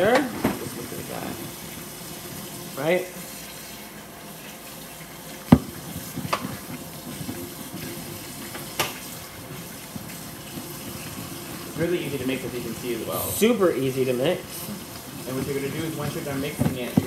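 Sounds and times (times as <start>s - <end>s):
dough stirring in a bowl: 5.3s - 17.0s.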